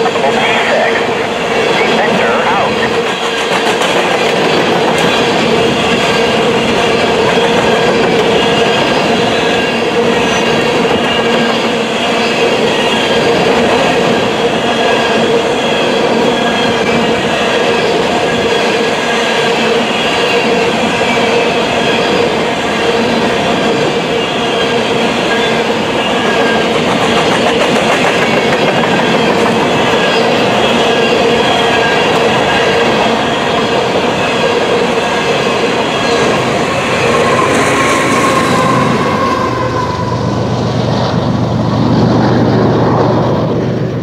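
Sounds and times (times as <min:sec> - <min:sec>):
train wheels clattering over rail joints: 0:03.0 - 0:09.7, 0:26.2 - 0:36.6.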